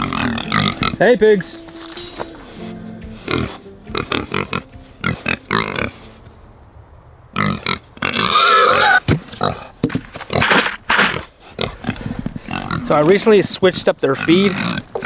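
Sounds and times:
pigs grunting: 0.0s - 1.1s, 2.5s - 6.1s, 7.3s - 13.4s, 14.0s - 15.0s.

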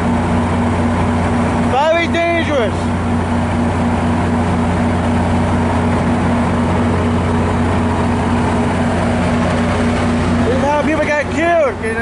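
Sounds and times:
diesel locomotive engine droning: 0.0s - 12.0s.

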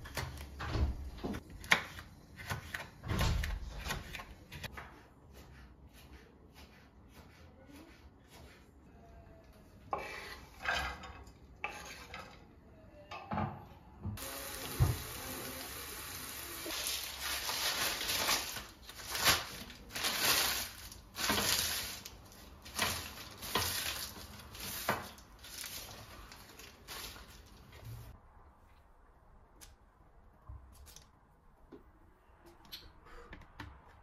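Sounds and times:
frying sizzle: 14.2s - 18.4s
baking paper crumpling: 16.6s - 27.8s.

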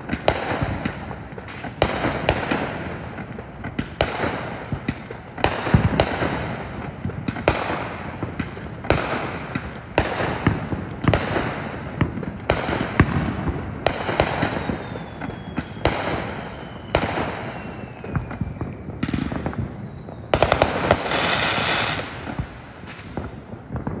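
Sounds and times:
fireworks bursting: 0.0s - 24.0s
falling firework whistles: 12.5s - 24.0s.

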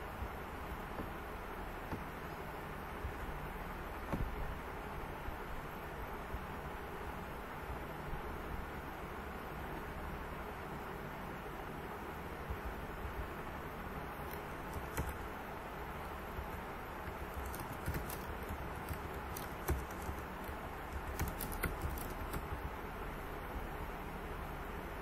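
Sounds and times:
steady background hiss: 0.0s - 25.0s
keyboard keystrokes clicking: 14.2s - 15.2s, 17.1s - 22.5s.

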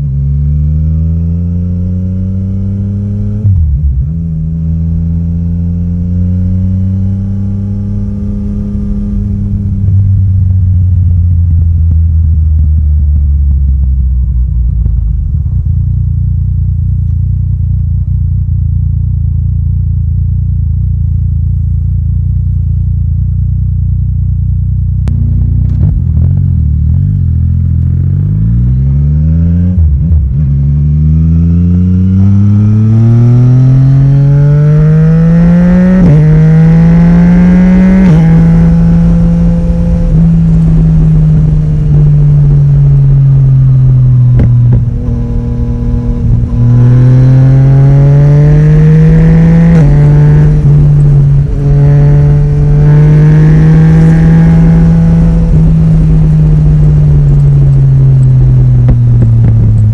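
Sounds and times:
motorcycle engine revving: 0.0s - 23.2s, 24.5s - 59.9s
exhaust popping: 25.0s - 28.0s, 37.6s - 59.9s.

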